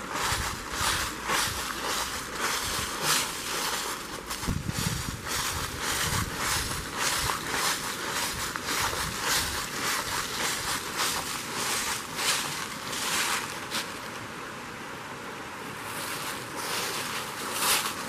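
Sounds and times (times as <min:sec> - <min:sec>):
footsteps crunching dry leaves: 0:00.0 - 0:14.1, 0:15.8 - 0:18.0.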